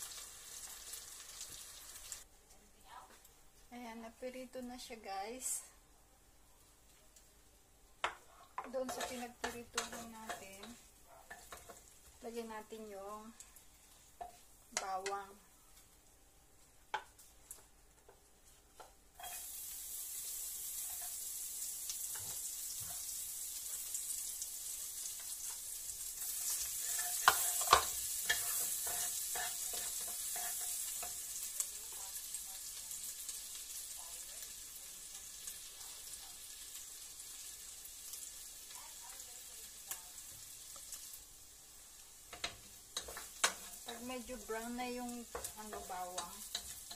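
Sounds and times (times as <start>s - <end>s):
garlic sizzling in hot oil: 0.0s - 2.3s, 7.2s - 46.9s
wooden spatula scraping a pan: 8.1s - 12.4s, 17.0s - 19.7s, 26.2s - 31.3s, 42.4s - 46.9s.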